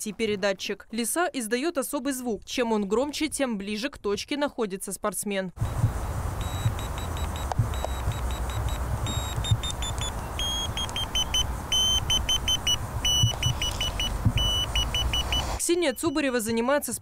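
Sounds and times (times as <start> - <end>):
morse code beeps: 5.6 - 17.0.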